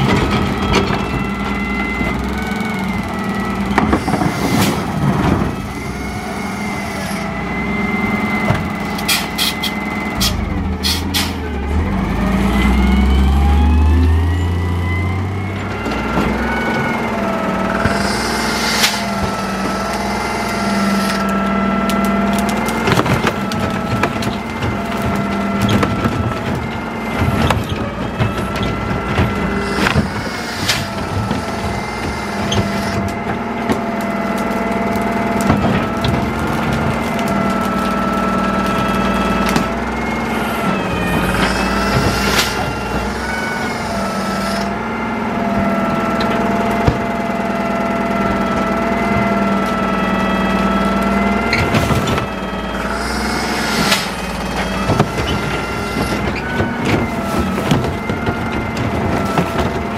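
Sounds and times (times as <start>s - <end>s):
garbage truck engine whining: 0.0s - 59.9s
branches crunching: 17.9s - 26.4s.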